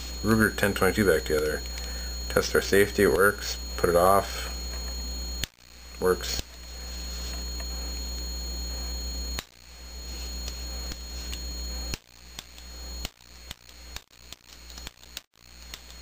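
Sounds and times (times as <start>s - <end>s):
steady electrical hum: 0.0s - 16.0s.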